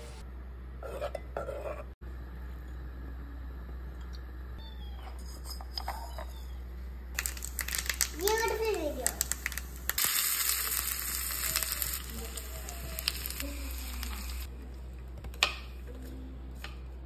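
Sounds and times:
food sizzling in hot oil: 9.1s - 14.5s.

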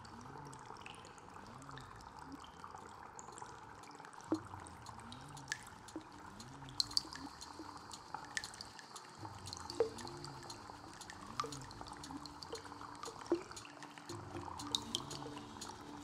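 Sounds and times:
water dripping: 0.0s - 16.0s
low swelling musical tone: 9.5s - 16.0s.

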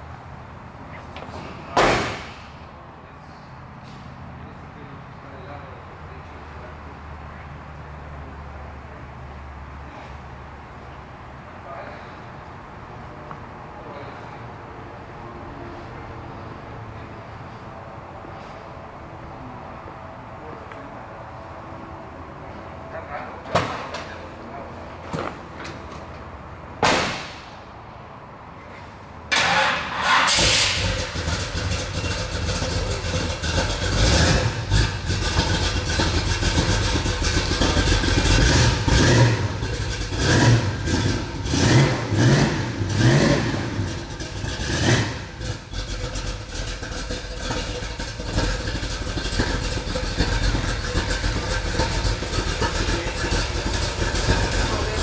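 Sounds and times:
truck engine revving and idling: 28.8s - 55.0s.

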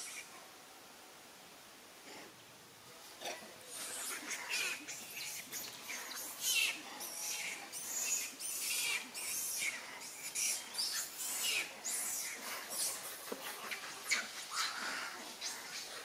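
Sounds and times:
macaques squealing: 3.7s - 16.0s.

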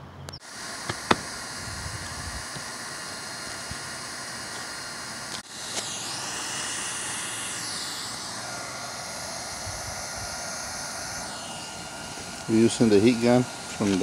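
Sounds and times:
heat gun hissing: 0.4s - 14.0s.

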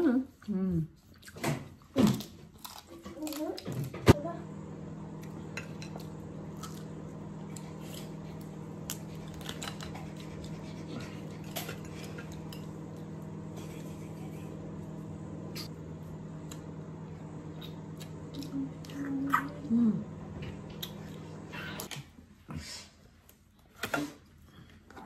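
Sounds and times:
steady low hum: 4.1s - 21.9s.

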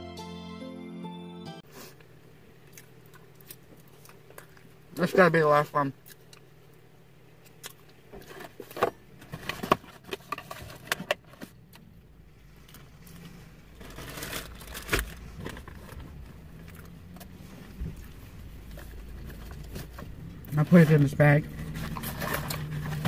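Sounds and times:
shopping bag rustling: 13.8s - 16.2s.

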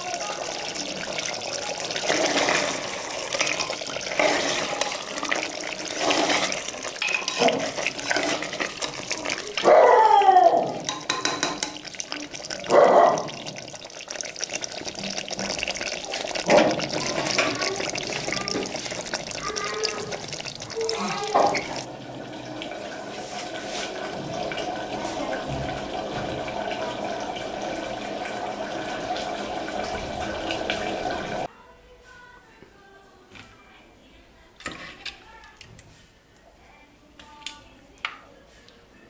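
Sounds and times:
gravy sloshing and squelching: 0.0s - 11.0s, 11.6s - 31.5s
metal spoon scraping a pot: 5.8s - 9.4s, 34.6s - 35.2s.

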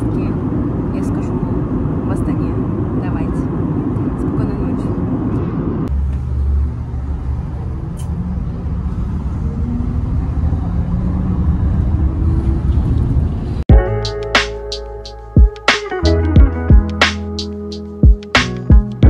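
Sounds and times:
airliner cabin hum: 0.0s - 13.9s
bus engine rumble: 0.0s - 14.0s.

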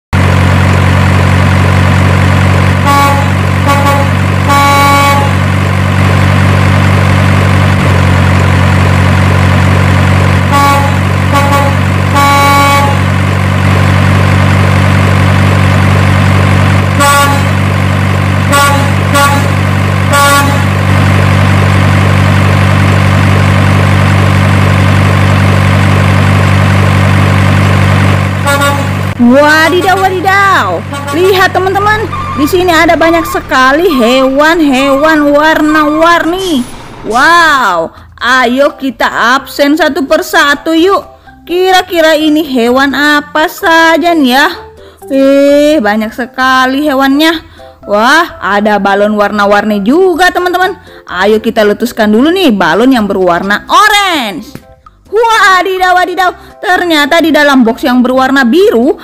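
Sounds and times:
truck engine droning: 0.1s - 53.8s
truck horn blasts: 2.6s - 6.5s, 10.2s - 13.8s, 15.8s - 23.1s, 24.7s - 36.9s.

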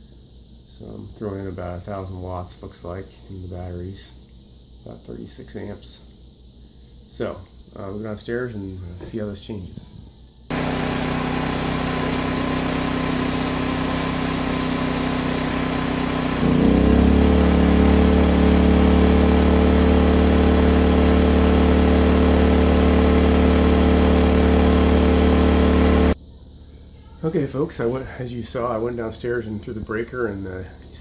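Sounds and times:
generator engine running: 10.5s - 26.2s.

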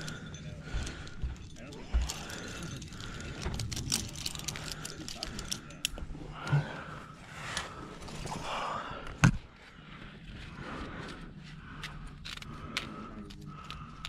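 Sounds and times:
climbing gear clinking: 0.0s - 6.6s.

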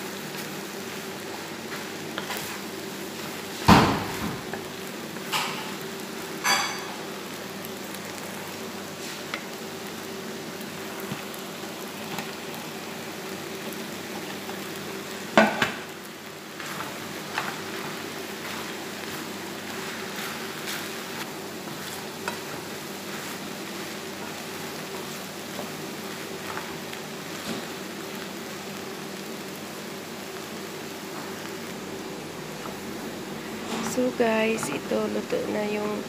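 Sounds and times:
noodles sizzling in frying pan: 0.0s - 36.0s.

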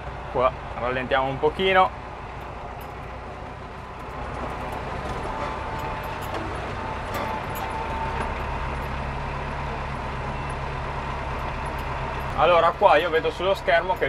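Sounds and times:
tractor diesel engine running: 0.0s - 14.0s
light clicks and rattles: 3.9s - 9.1s.

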